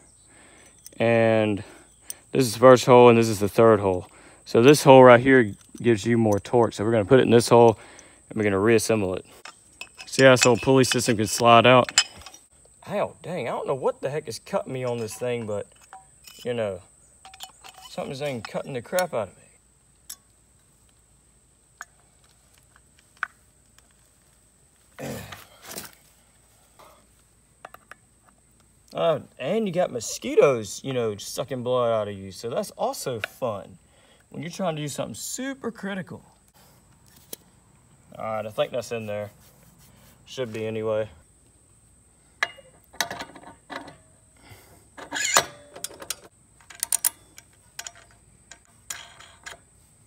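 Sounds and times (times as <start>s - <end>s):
metal parts clicking and clinking: 4.7s - 6.5s, 8.7s - 12.5s, 14.6s - 19.2s, 42.4s - 44.1s, 45.0s - 49.7s
sharp metal clank: 9.3s - 12.5s.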